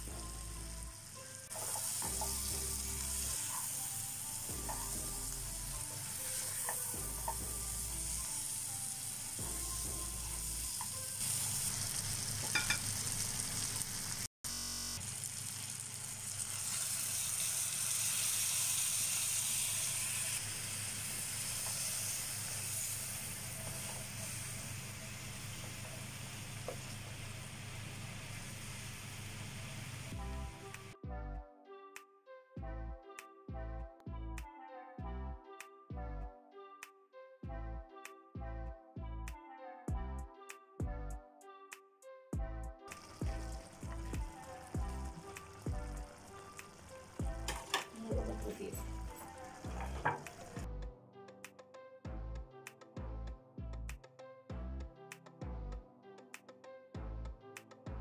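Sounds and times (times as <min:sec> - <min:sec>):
prawns sizzling in a frying pan: 0:00.0 - 0:31.0, 0:42.9 - 0:50.7.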